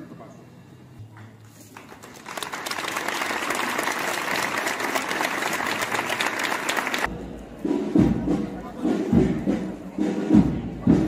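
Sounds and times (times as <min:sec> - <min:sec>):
crowd applauding: 0:01.7 - 0:07.1.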